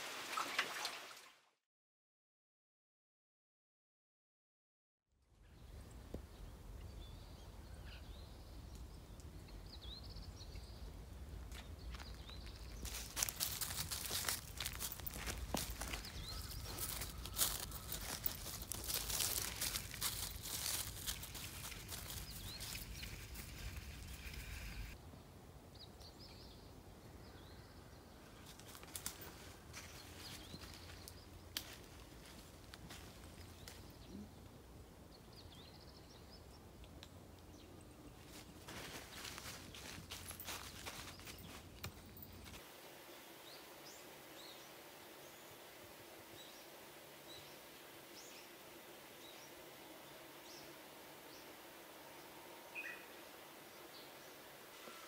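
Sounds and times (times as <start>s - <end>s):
faint outdoor background noise: 5.1s - 55.0s
small bird chirping: 11.6s - 25.0s
bird chirps: 15.1s - 18.7s, 52.7s - 53.2s.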